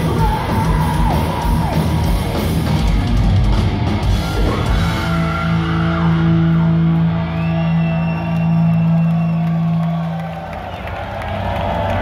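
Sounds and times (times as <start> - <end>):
heavy metal band playing live: 0.0 - 8.8.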